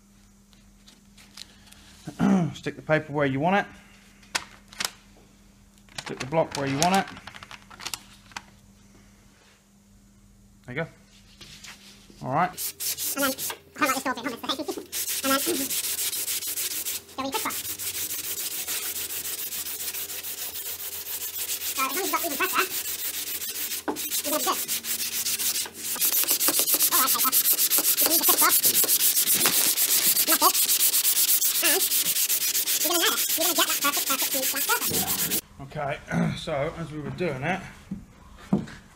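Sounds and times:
sandpaper rasping on filler: 12.6 - 35.4.

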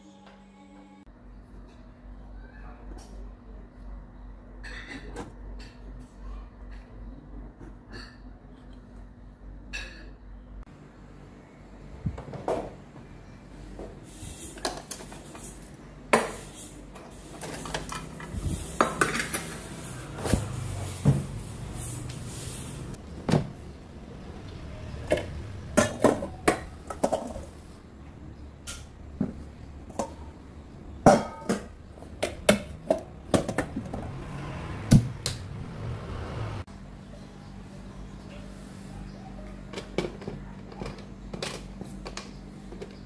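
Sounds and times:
kitchenware clattering: 4.6 - 5.9, 17.2 - 19.9, 24.8 - 27.8, 28.6 - 34.2.

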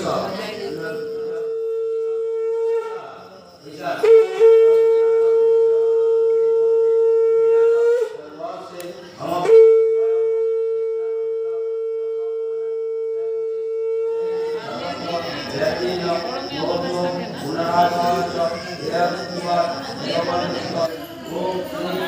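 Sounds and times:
conch shell blasts: 0.1 - 15.2.

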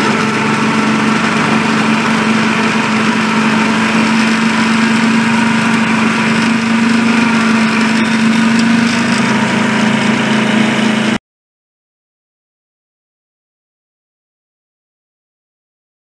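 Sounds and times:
miniature locomotive humming: 0.0 - 11.2.

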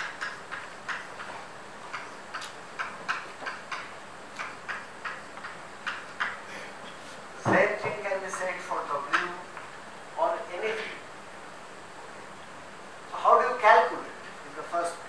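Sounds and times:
chalk tapping on blackboard: 0.0 - 6.4.

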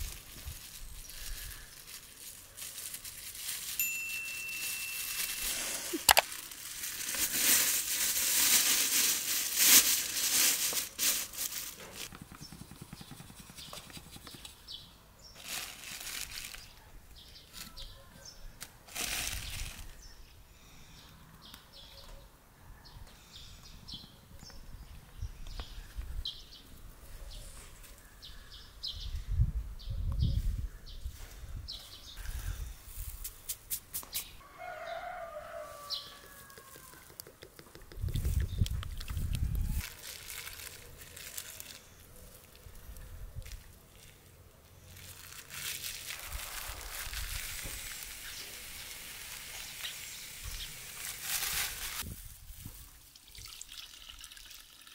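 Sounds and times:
plastic bags crinkling: 0.0 - 12.1, 15.4 - 16.8, 18.9 - 20.0, 38.7 - 52.1.

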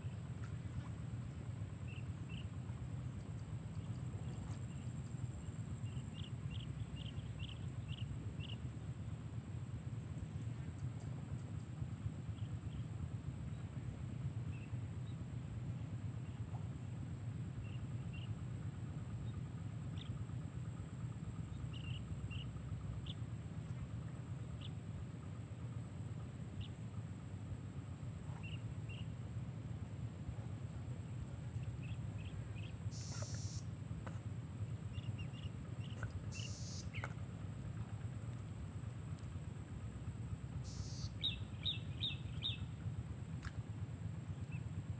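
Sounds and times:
steady low rumble: 0.0 - 44.9
bird chirps: 31.6 - 33.7, 34.9 - 37.2, 40.6 - 42.7.

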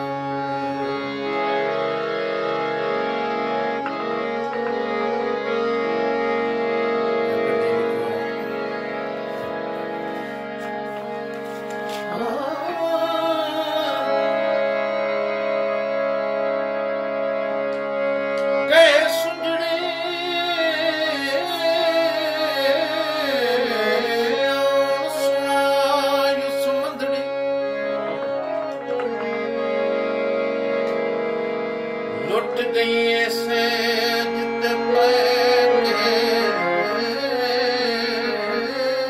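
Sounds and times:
harmonium: 0.0 - 39.0
man singing: 12.0 - 14.7, 18.6 - 29.4, 32.2 - 39.0.

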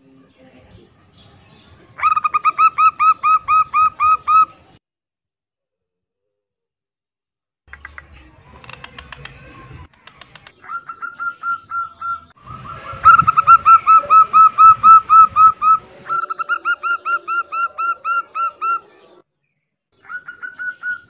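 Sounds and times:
dove clicking notes: 7.7 - 12.2.

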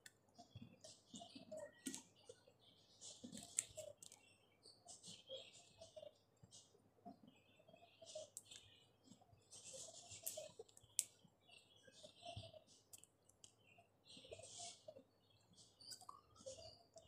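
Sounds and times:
peeling seed skin crackling: 3.3 - 4.2.

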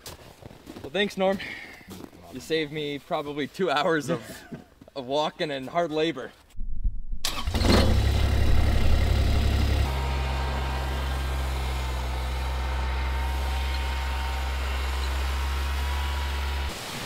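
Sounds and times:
utility vehicle engine running: 7.3 - 16.8.

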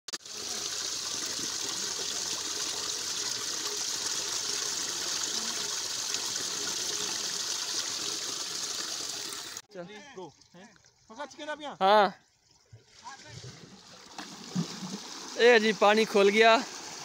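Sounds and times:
water pouring into a pool: 0.1 - 11.2, 12.3 - 17.0.

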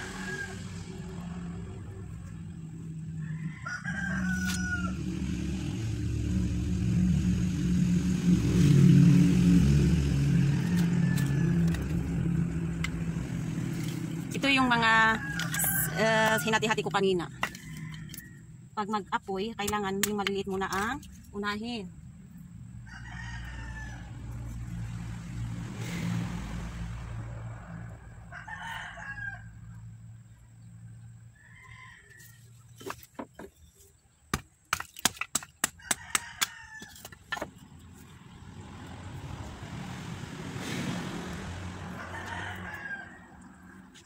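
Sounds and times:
rooster crowing: 0.0 - 1.7, 2.9 - 5.7, 10.1 - 12.6, 14.8 - 16.8, 17.4 - 18.5, 22.8 - 24.6, 27.5 - 29.9, 31.3 - 32.6, 35.7 - 37.2, 41.7 - 44.0
wooden sticks clicking and knocking: 34.3 - 37.8.

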